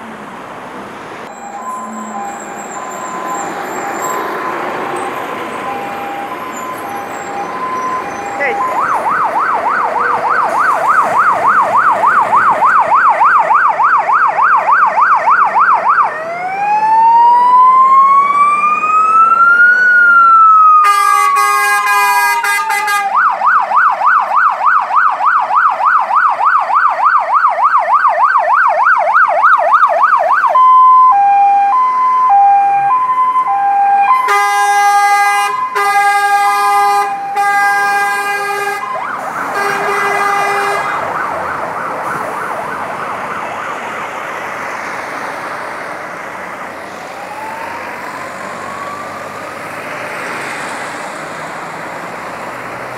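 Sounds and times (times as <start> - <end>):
fire engine siren: 1.2 - 52.9
horn blasts: 20.8 - 23.2, 34.1 - 41.0.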